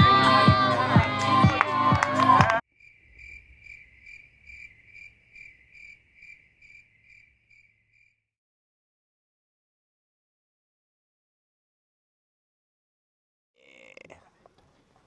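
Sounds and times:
music: 0:00.0 - 0:02.6
cricket chirping: 0:02.7 - 0:08.3.

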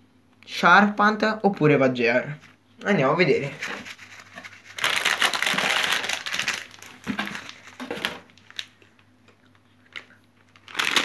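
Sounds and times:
plastic packets crinkling: 0:03.6 - 0:09.0, 0:09.9 - 0:11.0.

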